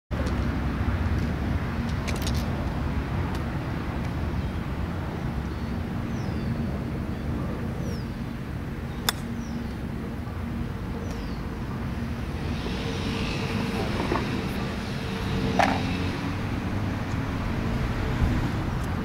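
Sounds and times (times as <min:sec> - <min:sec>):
low outdoor rumble: 0:00.2 - 0:19.0
golf club striking ball: 0:09.0 - 0:09.3, 0:15.6 - 0:15.8.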